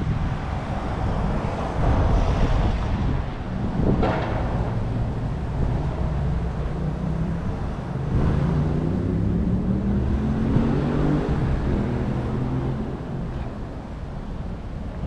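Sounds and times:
vehicle engines running: 0.0s - 15.0s
engine drone rising in pitch: 4.1s - 13.8s.

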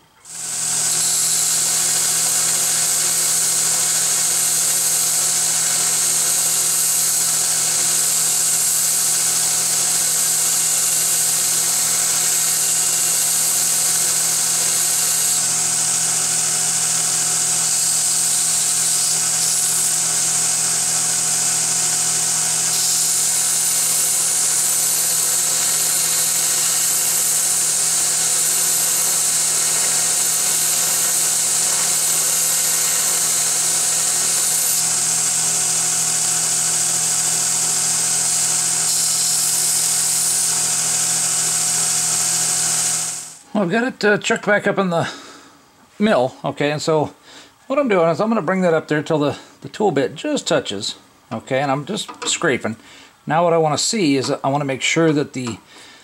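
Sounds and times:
motor hum: 0.0s - 43.4s
belt grinder grinding hiss: 0.0s - 43.5s, 50.8s - 56.0s.

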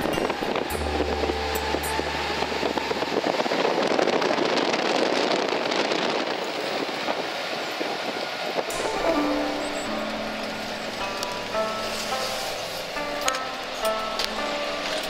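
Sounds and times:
car road noise from inside: 0.0s - 4.8s.

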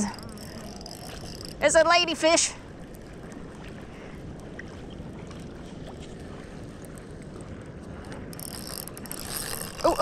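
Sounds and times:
fishing reel winding: 0.0s - 2.0s, 8.0s - 10.0s
wind rumble on microphone: 0.0s - 10.0s.

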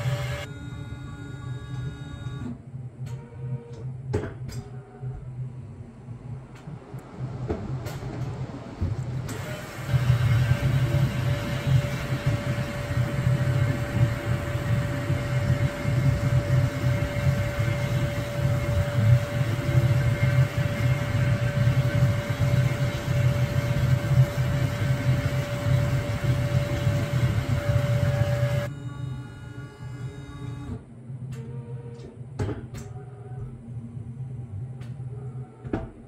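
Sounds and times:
milling machine whining: 0.0s - 2.6s, 9.3s - 30.8s.

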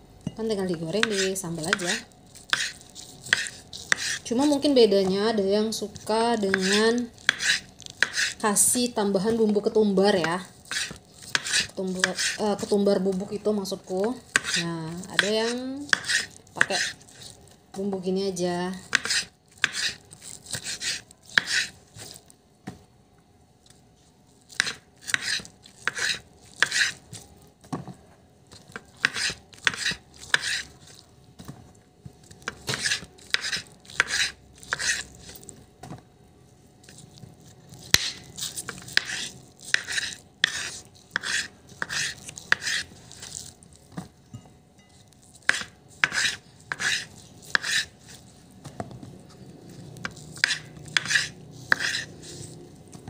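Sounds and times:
knife chopping on wooden board: 1.0s - 4.2s, 6.5s - 8.4s, 10.2s - 12.7s, 14.0s - 17.2s, 18.8s - 22.2s, 24.5s - 27.0s, 28.6s - 31.0s, 32.4s - 35.0s, 37.8s - 43.3s, 45.4s - 47.9s, 50.0s - 52.5s.

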